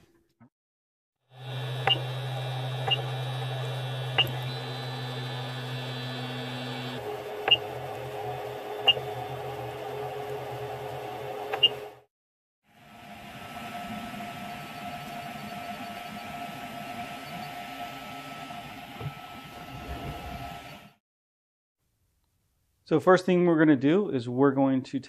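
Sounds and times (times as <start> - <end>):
control box humming: 1.3 - 12.1, 12.9 - 21.0.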